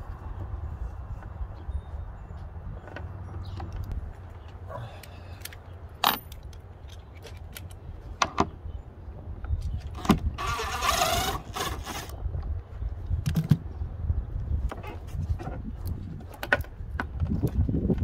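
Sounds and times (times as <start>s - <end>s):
drill driving a screw: 10.4s - 12.1s.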